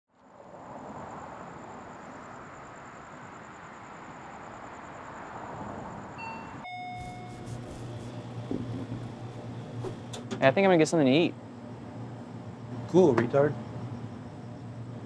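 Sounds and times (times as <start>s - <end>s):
rushing hum of distant traffic: 0.1s - 15.0s
two-note door chime: 6.2s - 7.5s
low steady cooler hum: 7.0s - 15.0s.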